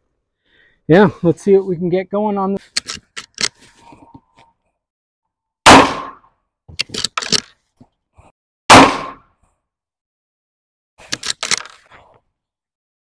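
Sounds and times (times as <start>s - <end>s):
rifle shots with echo: 5.7s - 6.2s, 8.7s - 9.2s
rifle lever metallic clacks: 6.8s - 7.5s.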